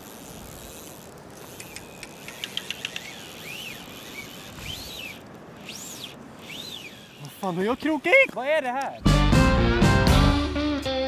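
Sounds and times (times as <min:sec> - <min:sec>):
fishing reel drag clicking: 0:00.0 - 0:07.8.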